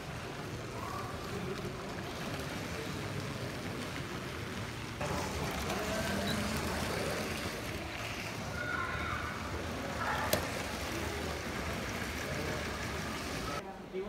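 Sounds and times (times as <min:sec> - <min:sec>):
faint indistinct voices: 0:00.0 - 0:14.0
steady hall hum: 0:00.0 - 0:14.0.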